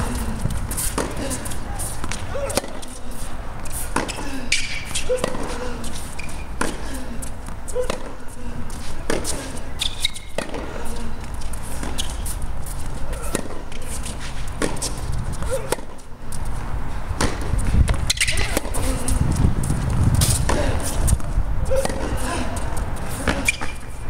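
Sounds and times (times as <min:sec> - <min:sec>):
tennis ball bouncing: 0:00.0 - 0:16.5, 0:17.1 - 0:19.1, 0:19.7 - 0:24.0
tennis ball struck by rackets: 0:00.6 - 0:03.0, 0:03.6 - 0:05.7, 0:06.3 - 0:06.9, 0:07.8 - 0:08.2, 0:09.0 - 0:10.8, 0:13.1 - 0:16.1, 0:17.2 - 0:19.0, 0:20.2 - 0:22.3.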